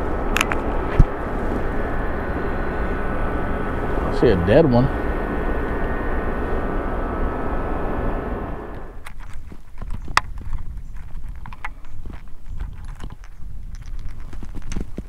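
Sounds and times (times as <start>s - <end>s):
boat motor humming: 0.0s - 9.0s.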